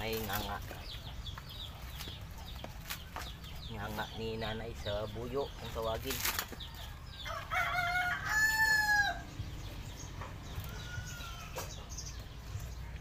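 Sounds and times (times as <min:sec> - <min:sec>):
rooster crowing: 0:06.8 - 0:09.3.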